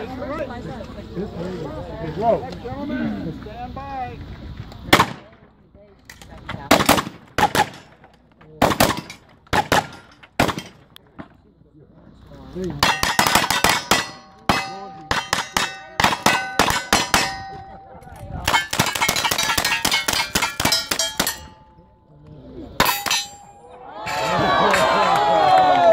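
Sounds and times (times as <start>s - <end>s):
steel target ringing: 12.8s - 22.1s, 22.8s - 23.8s
rapid gunfire: 18.5s - 21.0s
spectators cheering: 23.6s - 25.9s.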